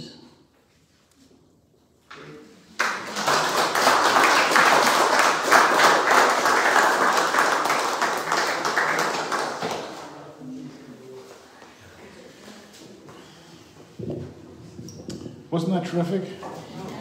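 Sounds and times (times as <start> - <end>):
audience applauding: 2.8 - 10.1.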